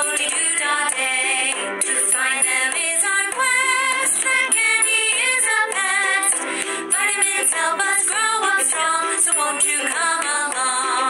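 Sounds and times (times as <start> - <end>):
song with high wavering vocal: 0.0 - 11.0.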